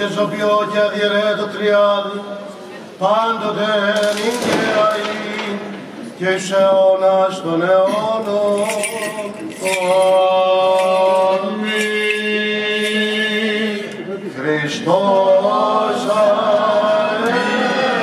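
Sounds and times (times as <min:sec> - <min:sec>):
man chanting a hymn: 0:00.0 - 0:18.0
censer bells jingling: 0:07.8 - 0:13.7.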